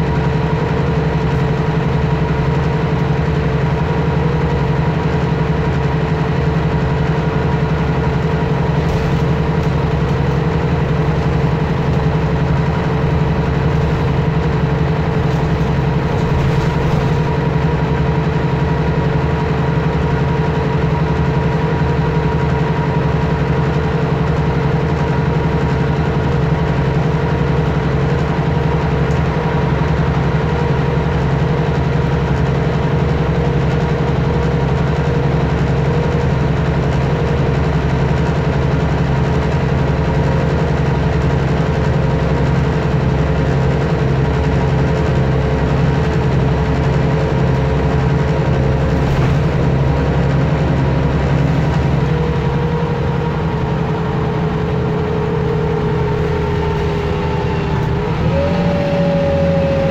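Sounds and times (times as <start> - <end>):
bus engine hum: 0.0 - 59.9.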